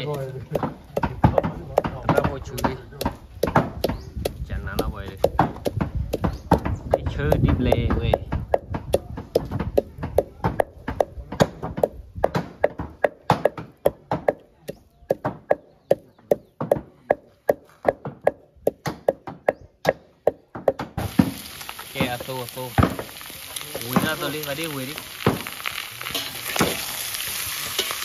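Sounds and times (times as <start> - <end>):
knife chopping on wooden board: 0.4 - 21.4
food frying sizzle: 21.0 - 28.0.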